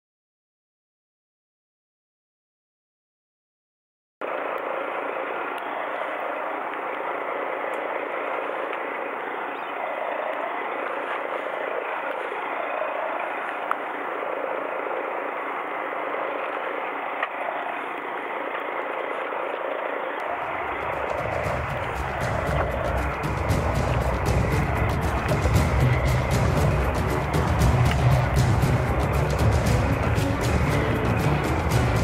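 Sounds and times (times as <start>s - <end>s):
water noise: 4.2s - 32.0s
boat engine running: 20.2s - 32.0s.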